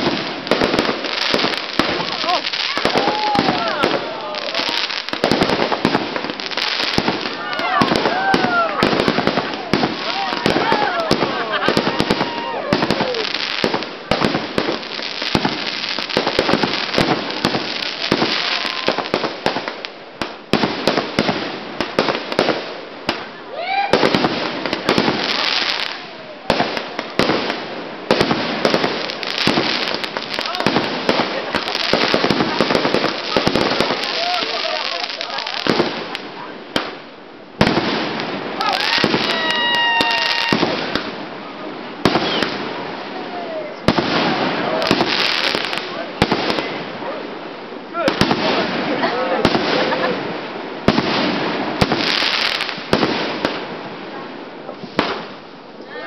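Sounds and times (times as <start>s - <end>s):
firework bangs: 0.0s - 43.2s, 43.8s - 54.1s, 54.8s - 55.4s
crackle and hiss of fireworks: 0.0s - 56.0s
firework whistle: 42.1s - 42.6s.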